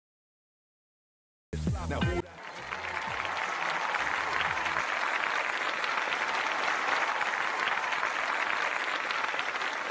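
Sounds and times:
many hands clapping: 0:02.2 - 0:09.9.

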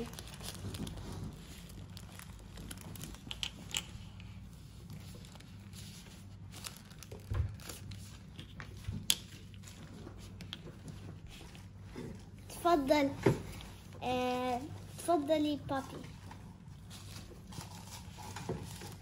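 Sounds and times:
plastic toys clicking and rustling: 0:00.0 - 0:04.3.

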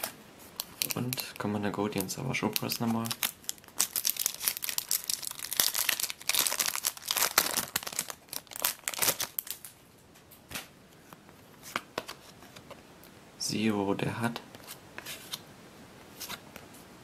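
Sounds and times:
foil wrapper crinkling and tearing: 0:00.6 - 0:09.7.

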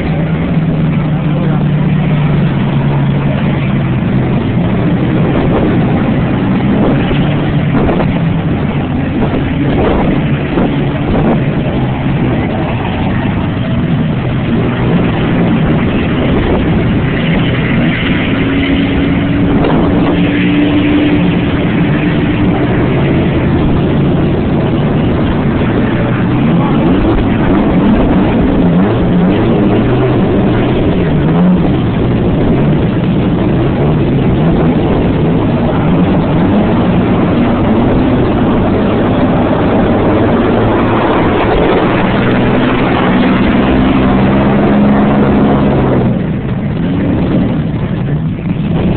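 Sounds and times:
bulldozer diesel engine under load: 0:00.0 - 0:48.9
higher steady hum: 0:00.0 - 0:48.9.

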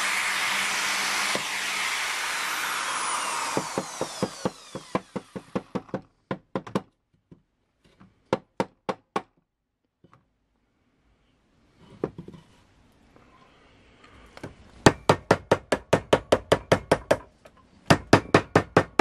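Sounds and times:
drill press motor whining: 0:00.0 - 0:05.5.

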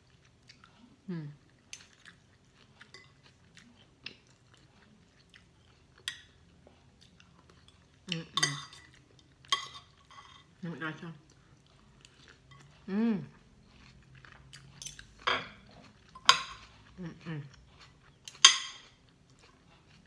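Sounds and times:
chewing: 0:00.0 - 0:20.0
cutlery clinking on a plate: 0:08.4 - 0:10.5, 0:14.8 - 0:15.6, 0:18.3 - 0:18.8
person humming mm: 0:12.9 - 0:13.3.

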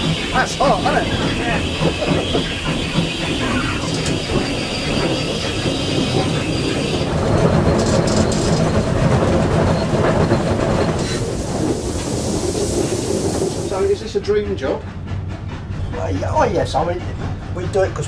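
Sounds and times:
rail-joint clatter: 0:00.0 - 0:18.0
wheels rumbling on rail: 0:00.0 - 0:18.0
high steam hiss: 0:09.9 - 0:15.4.

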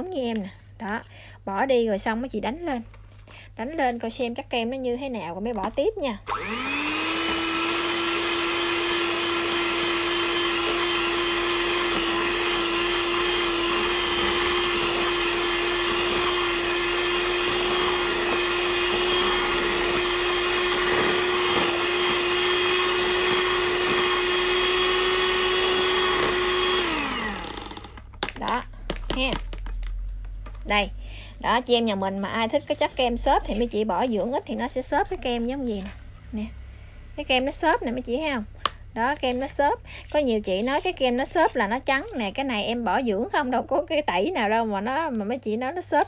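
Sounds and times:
electric mixer whipping cream: 0:06.3 - 0:28.1.

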